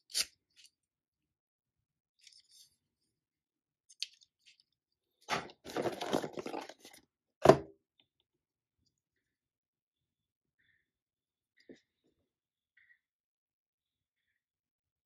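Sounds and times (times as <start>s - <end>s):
cardboard packaging crinkling: 5.6s - 7.0s.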